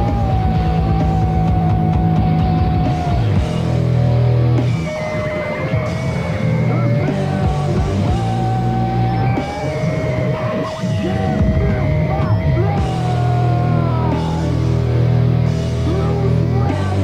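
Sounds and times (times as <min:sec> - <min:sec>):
person yelling vocals: 0:00.0 - 0:03.6, 0:06.7 - 0:15.0, 0:15.6 - 0:17.0
distorted punk rock instruments: 0:00.0 - 0:17.0.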